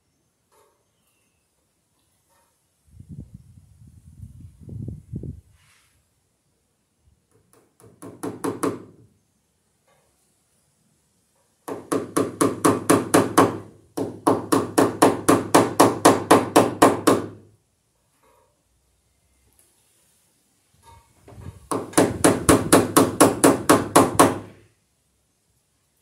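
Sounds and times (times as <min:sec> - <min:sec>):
hammer striking staple into wood: 0:07.3 - 0:09.0, 0:11.6 - 0:17.4, 0:21.7 - 0:24.6.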